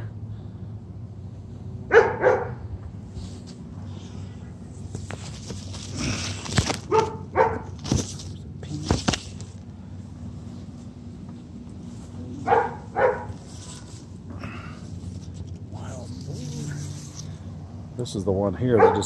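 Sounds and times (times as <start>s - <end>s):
steady low hum: 0.0s - 19.0s
dog barking: 1.9s - 2.6s, 6.9s - 7.8s, 12.4s - 13.4s, 18.7s - 19.0s.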